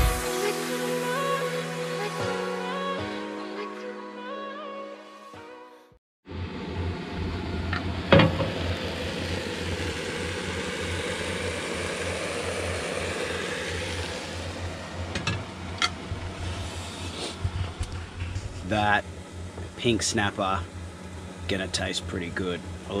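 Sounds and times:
gas burner rumble and hiss: 6.3s - 23.0s
fish frying: 7.9s - 16.1s.

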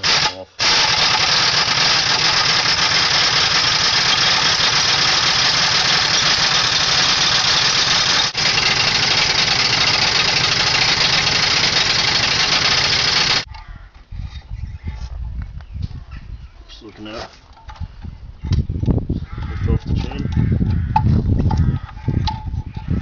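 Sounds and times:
electric drill whirring: 0.0s - 13.5s.

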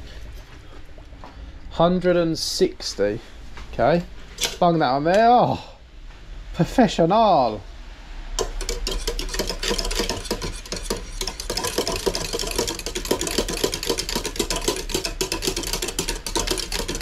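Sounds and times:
whisk clinking and scraping in pan: 8.4s - 17.0s.

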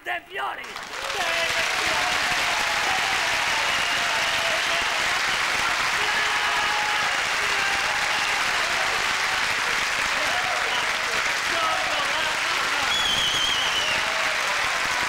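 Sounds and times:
audience applauding: 0.6s - 15.0s
people laughing: 1.0s - 12.9s.

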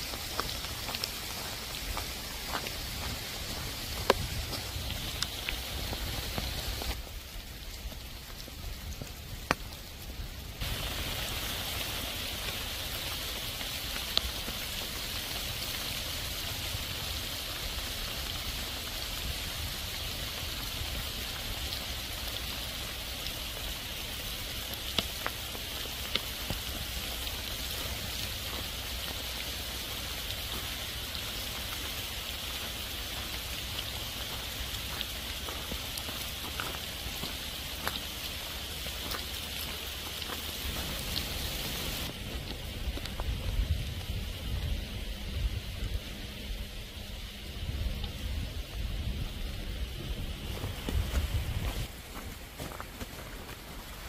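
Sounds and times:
heavy rain on leaves: 0.0s - 54.0s.

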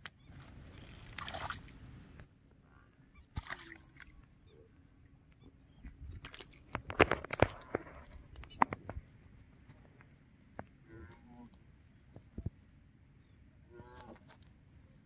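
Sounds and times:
shallow water splashing: 0.3s - 2.2s, 3.1s - 4.3s.

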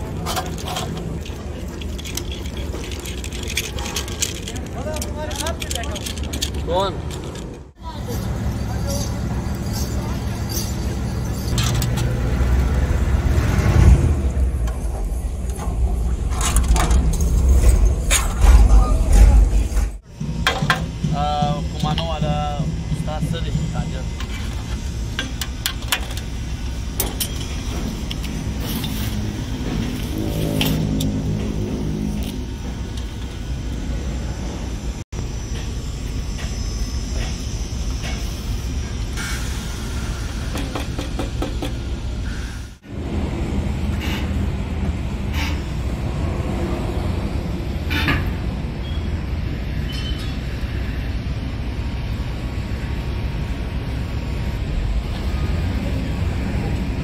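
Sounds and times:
small metal parts clinking: 0.0s - 12.0s
low traffic rumble: 0.0s - 57.0s
vehicle engine revving: 11.7s - 14.8s, 28.2s - 32.9s.

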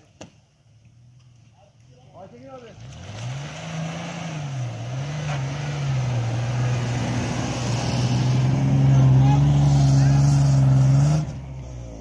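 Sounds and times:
engine revving: 2.6s - 12.0s.

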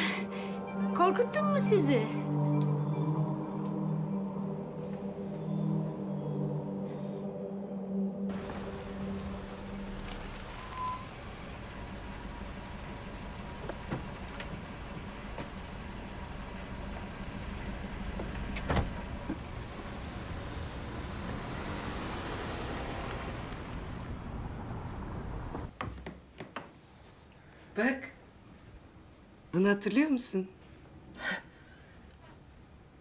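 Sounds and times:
car engine idling: 8.3s - 25.7s.

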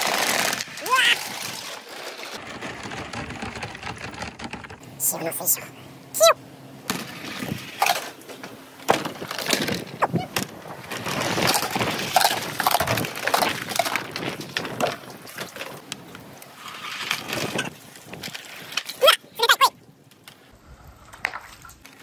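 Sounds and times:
balls clacking in plastic gutter: 0.0s - 5.0s, 6.9s - 16.2s.

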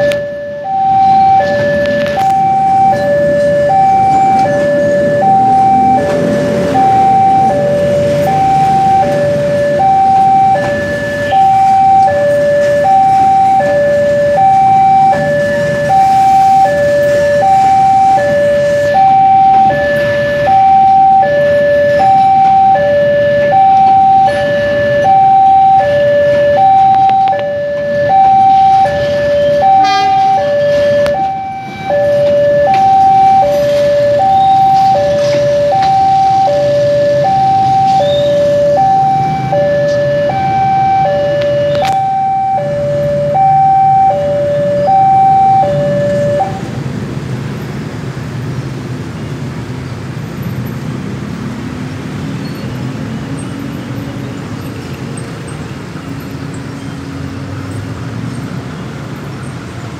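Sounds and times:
train rumbling past: 0.6s - 26.8s.

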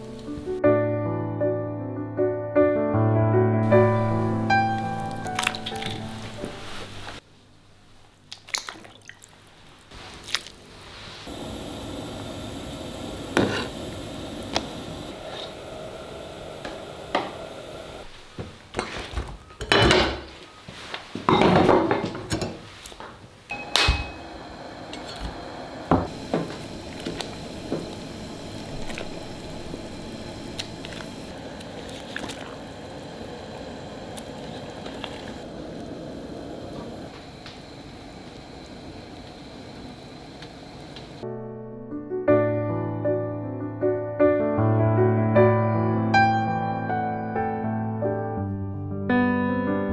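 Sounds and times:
pot of bones bubbling: 4.6s - 6.4s, 24.8s - 41.2s.

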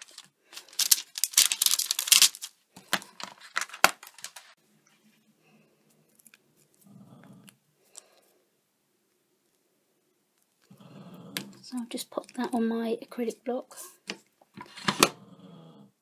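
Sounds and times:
plastic crackles and clicks: 0.0s - 4.6s.

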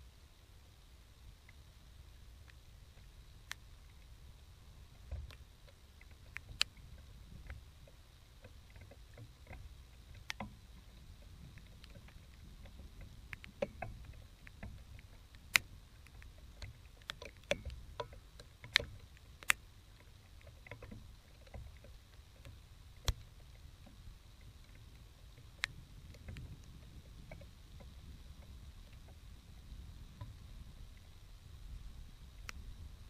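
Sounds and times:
sharp ticks and taps: 4.9s - 31.2s, 32.4s - 32.6s
storm wind rumbling on microphone: 22.5s - 33.0s.

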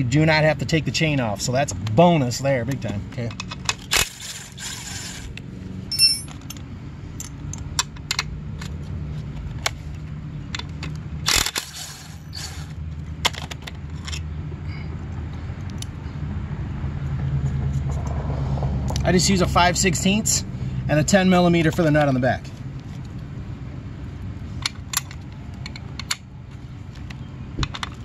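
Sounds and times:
power driver whirring: 3.8s - 5.4s, 11.3s - 12.8s
metal bolts clinking: 5.9s - 6.6s.

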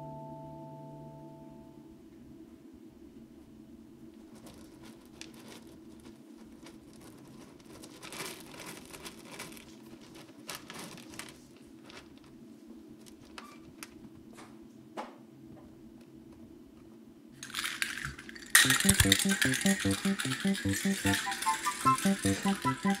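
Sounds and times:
kittens' paws scratching and pattering: 4.1s - 12.4s, 13.0s - 14.2s.

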